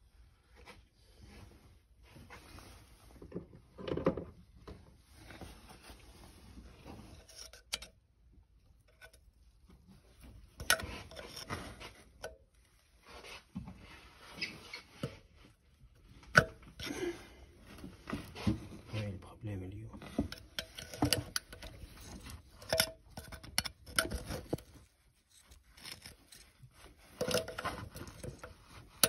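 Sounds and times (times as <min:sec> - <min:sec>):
rubbing and knocking handling noise: 0:17.5 - 0:29.0.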